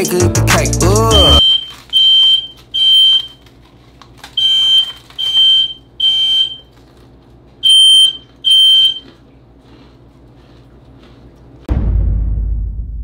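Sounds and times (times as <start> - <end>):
smoke alarm beeping: 1.4 - 3.4, 4.4 - 6.7, 7.6 - 9.0.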